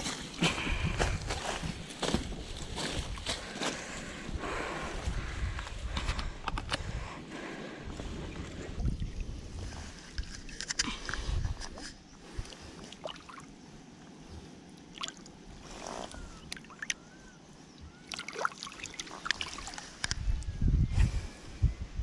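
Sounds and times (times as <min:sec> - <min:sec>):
river water sloshing: 0:12.4 - 0:13.5, 0:14.8 - 0:17.0, 0:18.1 - 0:20.0.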